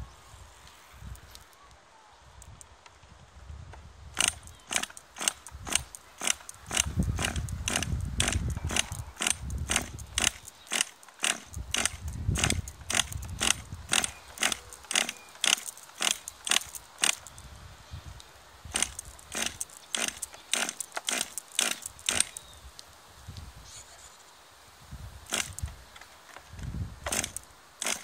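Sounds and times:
pull starter pulls: 4.2 - 17.3, 18.7 - 22.4, 25.3 - 25.7, 27.0 - 28.0.

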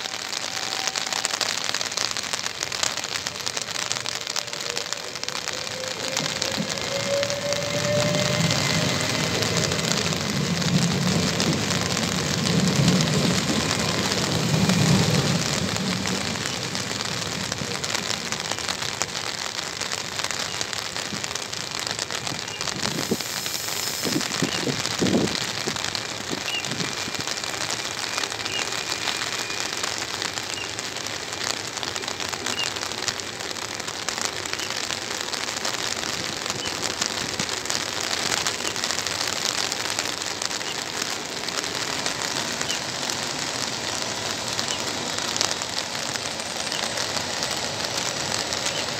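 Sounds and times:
heavy rain hissing: 0.0 - 48.9
electric train passing: 3.2 - 18.2.

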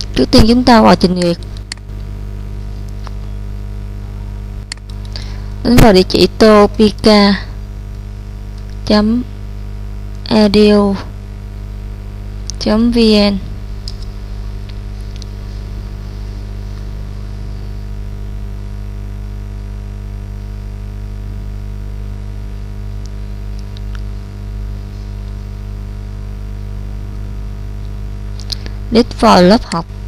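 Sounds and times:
electrical mains hum: 0.0 - 30.0
faint clicks: 1.2 - 2.1, 4.6 - 5.3.

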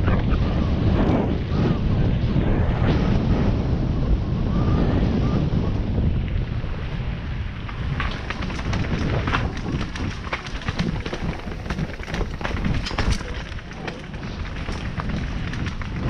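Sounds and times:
bike tyres rumbling on dirt: 0.0 - 16.0
wind buffeting microphone: 0.0 - 16.0
bike clicking and rattling: 7.5 - 16.0.

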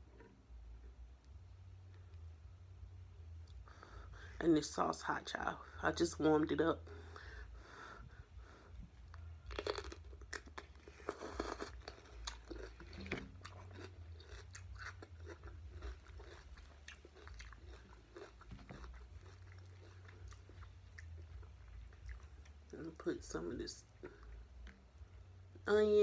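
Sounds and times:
person chewing crisply: 9.0 - 25.2
cucumber crunching: 9.1 - 24.9.

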